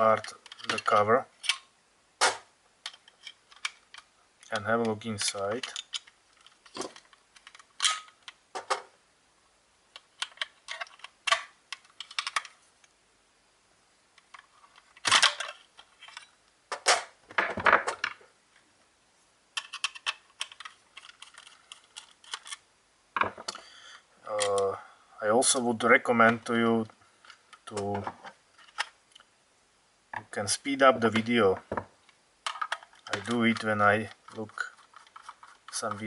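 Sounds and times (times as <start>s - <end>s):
plastic clicks and rattles: 0.2s - 8.9s, 10.0s - 12.6s, 14.2s - 18.2s, 19.6s - 22.6s, 27.2s - 29.3s, 31.1s - 36.0s.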